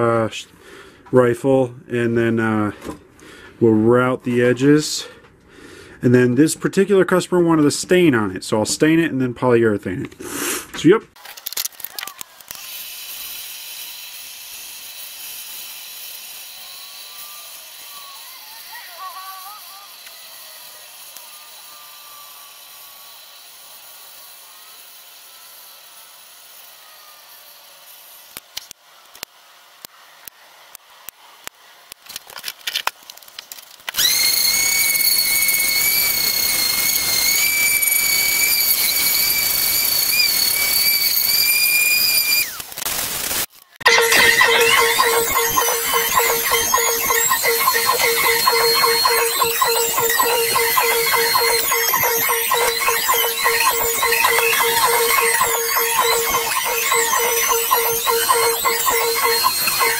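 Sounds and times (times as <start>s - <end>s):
orbital sander sanding wood: 43.9s - 59.9s.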